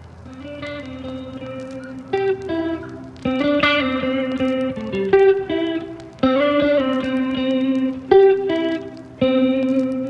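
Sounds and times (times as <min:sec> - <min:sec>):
guitar melody background music: 0:00.2 - 0:10.0.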